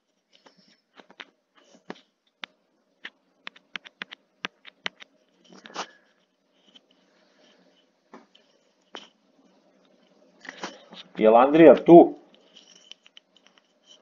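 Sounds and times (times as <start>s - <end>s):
sharp clicks and taps: 1.0s - 5.8s
rustling: 3.0s - 11.2s.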